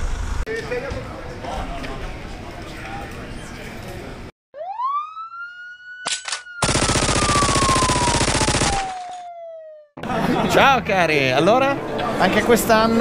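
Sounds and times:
siren winding up and falling: 0:04.6 - 0:10.0
gunfire burst: 0:06.6 - 0:09.0
rapid machine-gun fire: 0:06.6 - 0:09.0.

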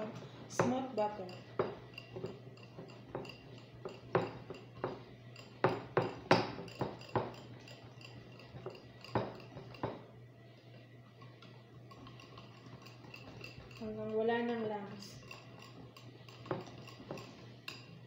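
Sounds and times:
whisk clinking against glass bowl: 0:00.6 - 0:10.0, 0:11.8 - 0:18.0.

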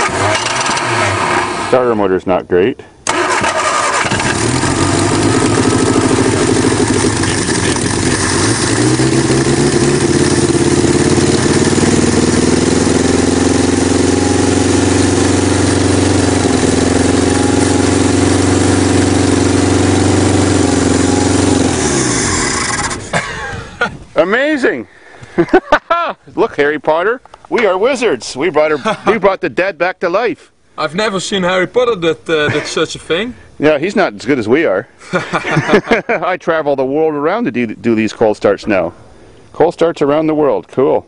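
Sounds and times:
car engine running: 0:04.0 - 0:23.1.

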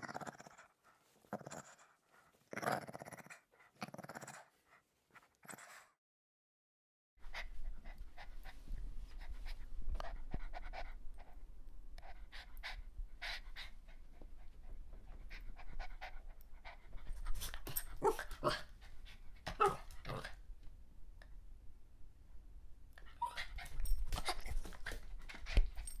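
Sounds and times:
puppy panting: 0:07.3 - 0:11.4, 0:12.0 - 0:20.0.

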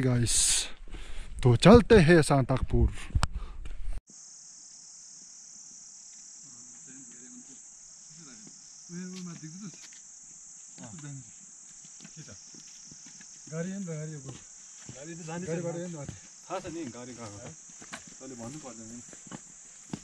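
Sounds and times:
high-pitched insect drone: 0:04.1 - 0:20.0.

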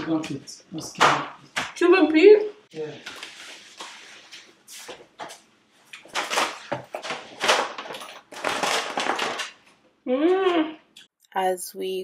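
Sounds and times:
plastic wrapping crinkling: 0:06.0 - 0:09.8.

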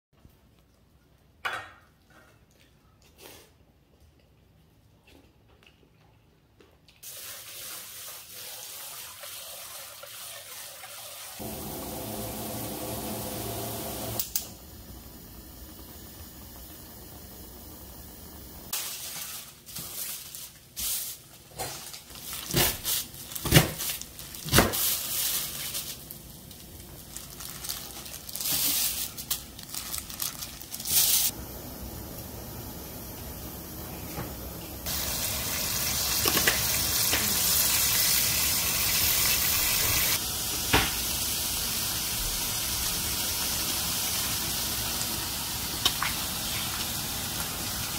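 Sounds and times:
plastic bag crinkling: 0:18.8 - 0:31.3.

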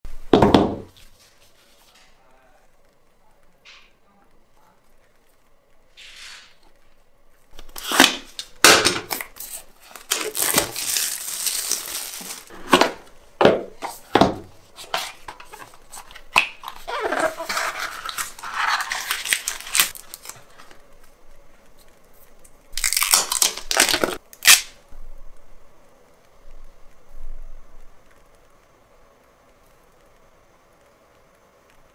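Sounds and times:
plastic film and card tearing: 0:05.9 - 0:06.6, 0:07.5 - 0:20.8, 0:22.7 - 0:24.8.

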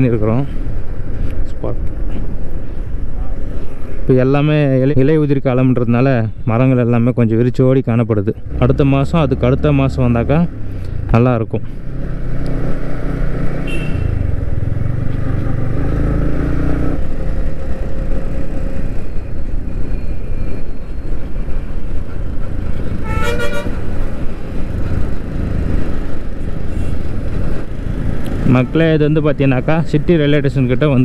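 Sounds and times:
wind and road noise: 0:00.0 - 0:31.0
vehicle horn honk: 0:13.6 - 0:14.2, 0:23.0 - 0:23.8.

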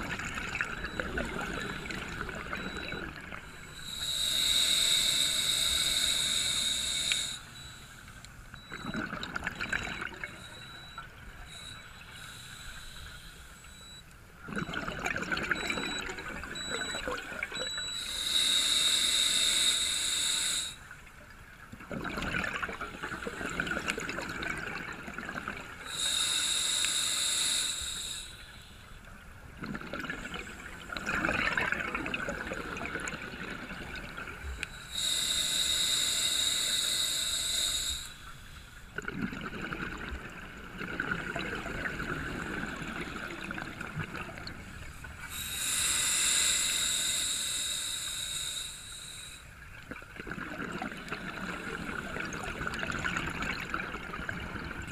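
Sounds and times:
gushes of exhaled bubbles: 0:00.0 - 0:03.4, 0:08.6 - 0:10.3, 0:14.5 - 0:17.8, 0:21.7 - 0:25.8, 0:29.6 - 0:34.4, 0:39.0 - 0:45.1, 0:49.8 - 0:54.9
diver breathing through regulator: 0:00.9 - 0:08.8, 0:10.0 - 0:14.0, 0:16.6 - 0:20.8, 0:25.8 - 0:28.9, 0:34.5 - 0:38.8, 0:45.0 - 0:49.5.

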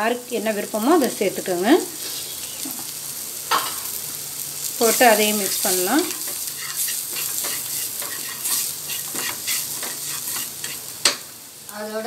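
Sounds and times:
vegetables sizzling in oil: 0:00.0 - 0:12.0
wooden spatula scraping pan: 0:06.0 - 0:10.9.

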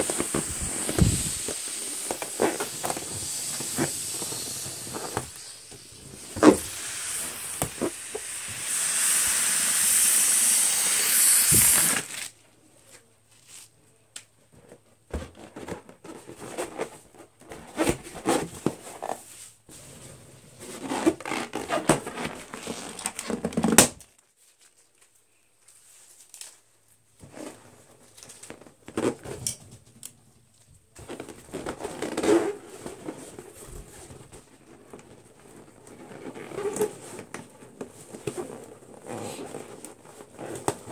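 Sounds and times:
air hissing out of balloon: 0:00.0 - 0:12.2
balloons rubbing and squeaking: 0:00.0 - 0:12.3, 0:15.3 - 0:23.9, 0:31.0 - 0:40.9.

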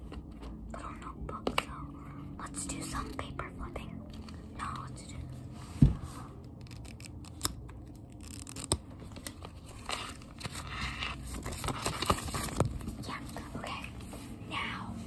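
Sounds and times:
heavy thump on microphone: 0:05.8 - 0:06.1.

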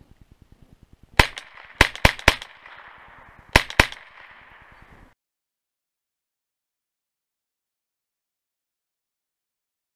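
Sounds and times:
rifle shots with echo: 0:01.2 - 0:04.9.

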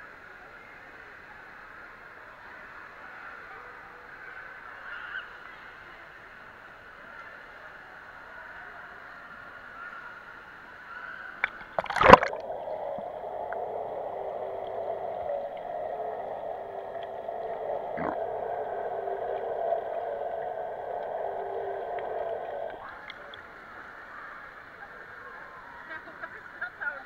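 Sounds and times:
splash into water: 0:11.4 - 0:12.5
muffled underwater rush: 0:11.4 - 0:25.6.

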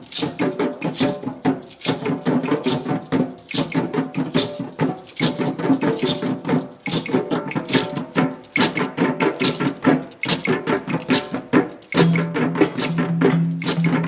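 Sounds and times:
djembe hand drumming: 0:00.0 - 0:14.0.

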